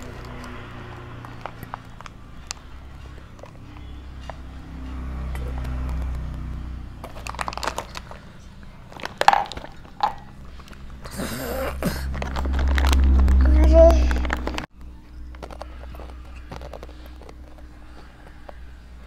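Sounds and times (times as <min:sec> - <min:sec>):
low hum: 0:00.0 - 0:19.0
child gulping water: 0:09.2 - 0:12.8.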